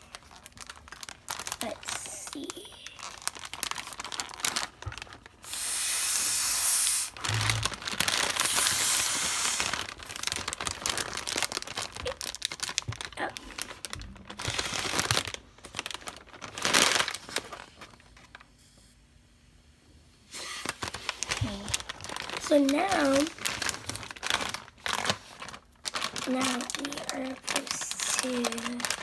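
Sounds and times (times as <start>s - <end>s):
plastic packaging crinkling: 0.0s - 18.5s, 20.3s - 29.0s
breath blown through a straw: 5.4s - 7.2s, 8.4s - 9.7s.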